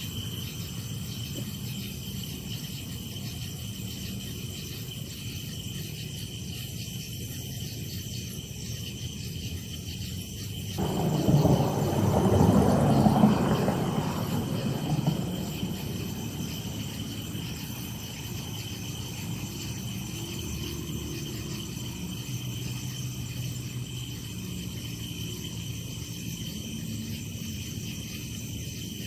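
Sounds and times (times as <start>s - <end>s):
crickets trilling: 0.0s - 29.0s
loud rumbling noise: 10.8s - 17.9s.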